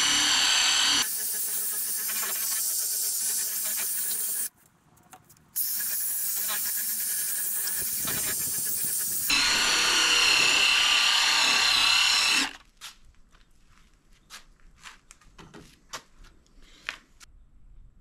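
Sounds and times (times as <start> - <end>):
impact driver motor whine: 0.0 - 1.2, 7.8 - 12.6.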